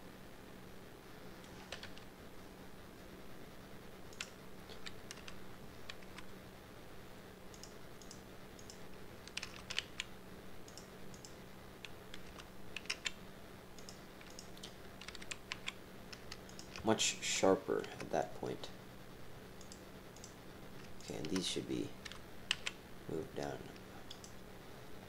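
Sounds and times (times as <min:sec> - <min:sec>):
faint electrical hum: 0:00.0 - 0:25.0
keyboard and mouse clicking: 0:01.4 - 0:02.1, 0:04.1 - 0:06.3, 0:07.5 - 0:10.1, 0:10.7 - 0:13.2, 0:13.8 - 0:16.9, 0:19.6 - 0:22.8, 0:24.1 - 0:24.4.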